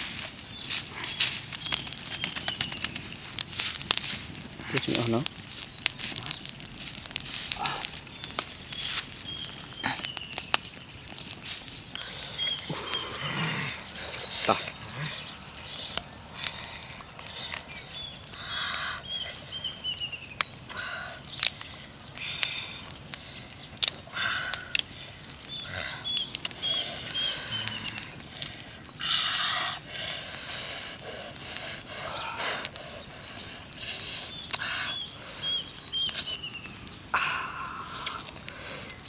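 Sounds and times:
bird singing falling notes: 0:00.1 - 0:03.2, 0:04.9 - 0:20.6, 0:34.2 - 0:38.4
crab shell cracking: 0:00.2 - 0:39.0.

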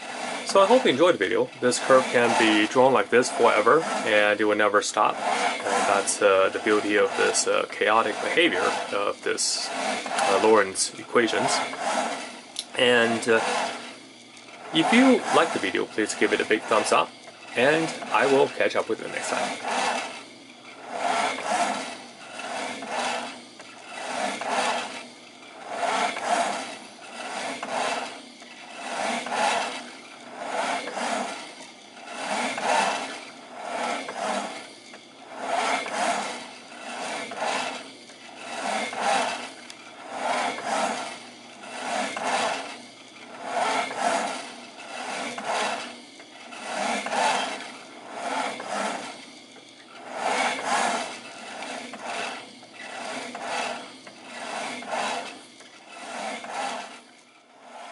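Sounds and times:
plotter pen arm rasping whir: 0:00.0 - 0:57.9.

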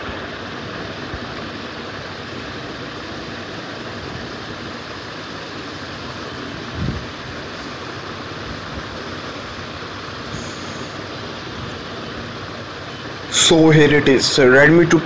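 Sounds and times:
steady background hiss: 0:00.0 - 0:15.0.

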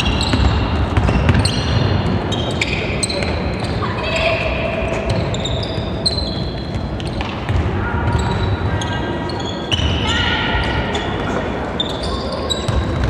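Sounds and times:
basketball bouncing: 0:00.0 - 0:02.2, 0:06.7 - 0:07.8
large hall background noise: 0:00.0 - 0:13.0
sneakers squeaking on court: 0:00.0 - 0:13.0.

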